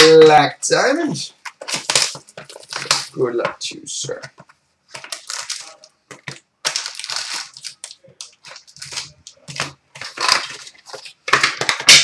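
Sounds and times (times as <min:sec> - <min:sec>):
plastic wrappers crinkling and tearing: 0:01.4 - 0:03.5, 0:04.3 - 0:12.0.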